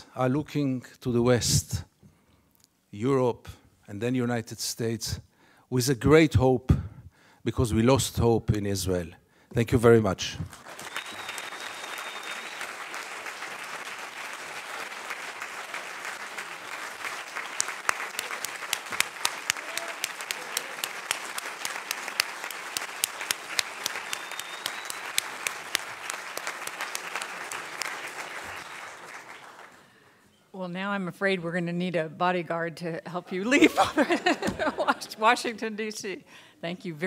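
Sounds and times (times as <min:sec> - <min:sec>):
large audience applauding: 0:10.5 - 0:30.0.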